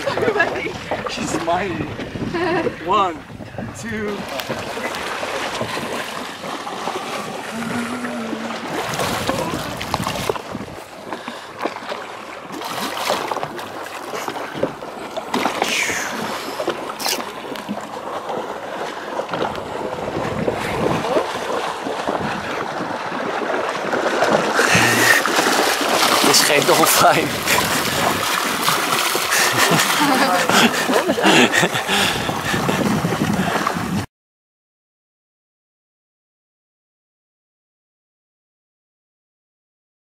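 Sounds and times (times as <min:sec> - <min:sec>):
wind on microphone: 0:00.0 - 0:06.0, 0:07.4 - 0:11.0, 0:19.3 - 0:26.2, 0:27.2 - 0:29.0, 0:29.6 - 0:34.1
water lapping against boat hull: 0:00.0 - 0:34.0.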